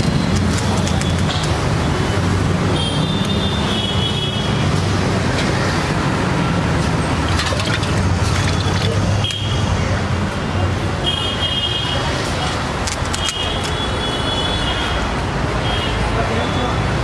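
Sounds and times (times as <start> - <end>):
street traffic rumble: 0.0 - 17.0.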